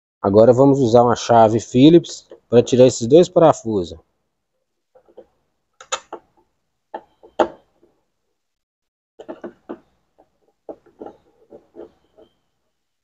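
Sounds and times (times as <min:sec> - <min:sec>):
screwdriver clicks and knocks: 0:09.2 - 0:09.9.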